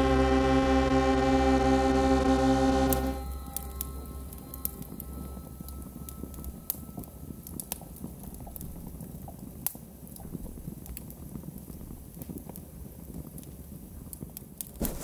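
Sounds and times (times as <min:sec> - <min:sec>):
held tone and deep hum: 0:00.0 - 0:09.2
electronic clicks and crackles: 0:00.0 - 0:09.4
low rumbling noise: 0:00.0 - 0:12.2.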